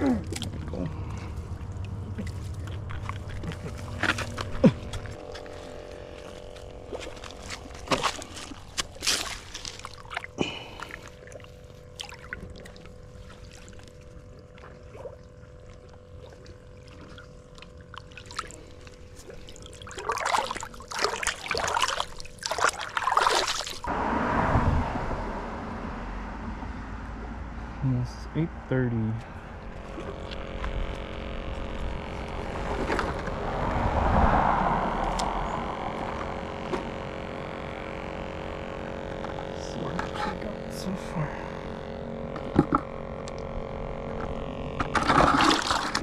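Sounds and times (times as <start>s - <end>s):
water trickling and splashing: 6.8s - 23.9s.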